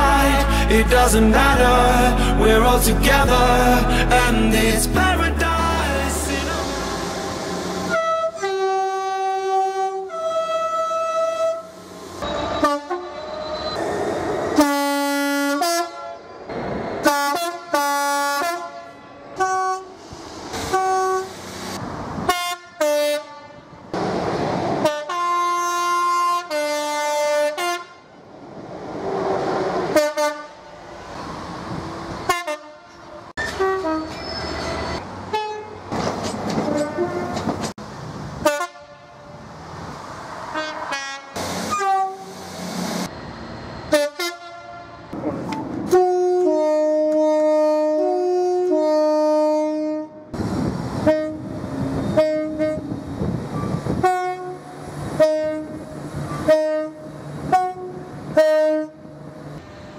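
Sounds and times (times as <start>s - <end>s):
locomotive horns blasting: 6.7s - 13.8s, 17.0s - 20.0s, 32.2s - 35.8s, 36.6s - 37.6s, 40.5s - 42.4s, 43.9s - 45.1s, 45.8s - 50.2s, 51.0s - 53.0s, 53.6s - 59.1s.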